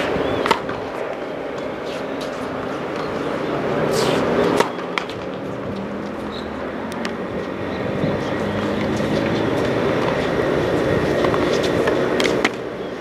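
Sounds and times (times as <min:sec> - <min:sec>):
tennis racket hitting ball: 0:00.0 - 0:00.8, 0:04.1 - 0:06.2
low outdoor rumble: 0:00.0 - 0:13.0.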